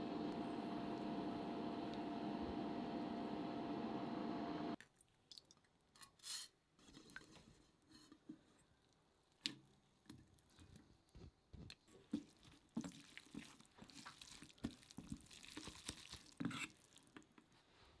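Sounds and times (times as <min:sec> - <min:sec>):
light clicks and drips: 0:04.8 - 0:06.1
chopsticks squishing and scraping noodles: 0:07.7 - 0:17.4.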